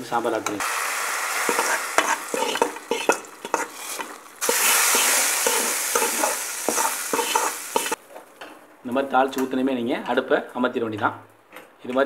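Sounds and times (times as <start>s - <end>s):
hot oil sizzling: 0.0s - 8.0s
metal spatula scraping a wok: 1.4s - 8.0s.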